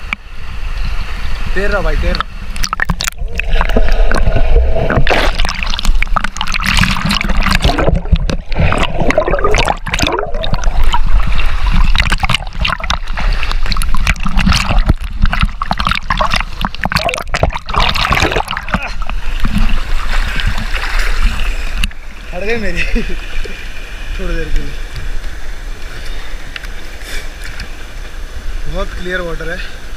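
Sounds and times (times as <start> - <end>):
underwater gurgling: 2.0 - 22.6
water splashing and sloshing: 2.1 - 28.5
bubble crackle: 2.6 - 21.9.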